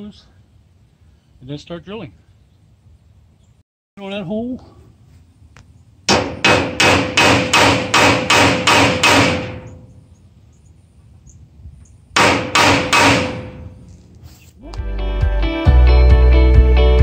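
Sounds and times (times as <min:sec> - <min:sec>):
hammer striking metal punch: 0:06.1 - 0:09.8, 0:12.2 - 0:13.7.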